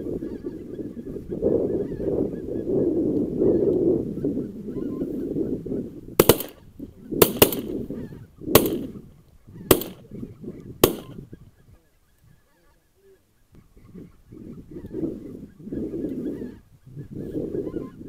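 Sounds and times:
shotgun shots: 0:06.2 - 0:06.6, 0:07.2 - 0:07.8, 0:08.6 - 0:09.0, 0:09.7 - 0:10.0, 0:10.8 - 0:11.2.

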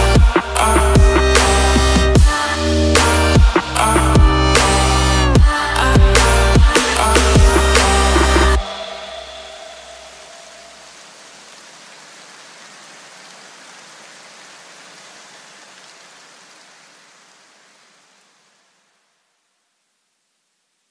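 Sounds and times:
soft rain-like hiss: 0:04.8 - 0:20.9.

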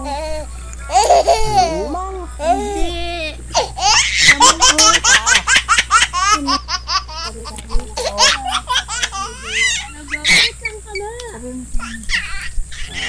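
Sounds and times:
hearty high-pitched laughter: 0:00.0 - 0:07.2, 0:11.8 - 0:13.0.

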